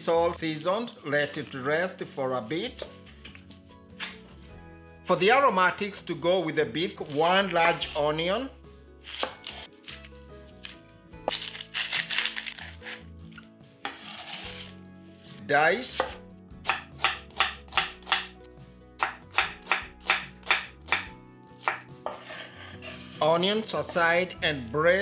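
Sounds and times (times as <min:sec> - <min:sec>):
onion skin rustling: 0:07.0 - 0:08.1, 0:09.1 - 0:13.0
knife slicing onto board: 0:13.8 - 0:14.8, 0:20.9 - 0:23.2.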